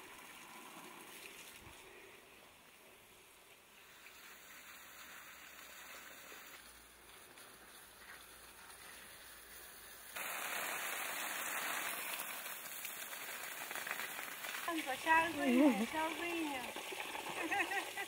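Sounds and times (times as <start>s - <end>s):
faint steady hiss: 0.0s - 18.0s
hose spray hitting leaves: 3.8s - 18.0s.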